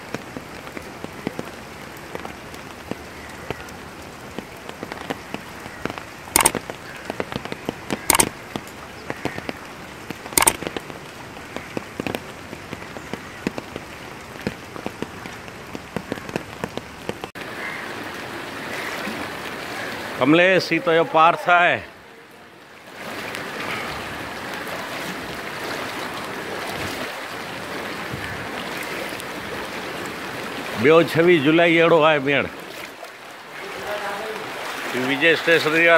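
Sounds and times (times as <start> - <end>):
rain falling on water: 0.0 - 35.9
sharp loud clicks: 6.4 - 6.7, 8.0 - 8.4, 10.4 - 10.8.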